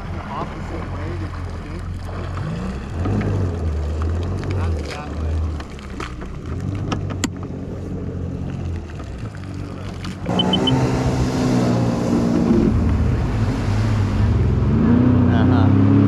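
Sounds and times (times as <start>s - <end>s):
water rushing and spray: 0.0s - 6.8s, 8.6s - 15.9s
watercraft engine: 0.0s - 16.0s
short high beeps: 10.3s - 10.8s.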